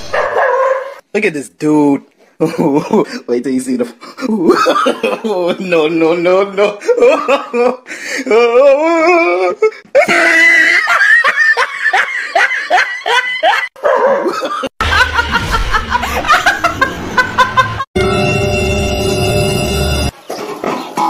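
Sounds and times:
hearty human laughter: 0:02.4 - 0:03.2, 0:04.2 - 0:17.9
woman laughing: 0:04.3 - 0:05.6, 0:09.1 - 0:17.9.

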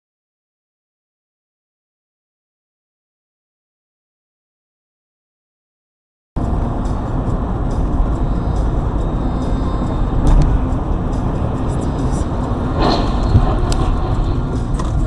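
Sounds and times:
car road and engine noise: 0:06.4 - 0:15.0
car crash: 0:12.7 - 0:15.0.

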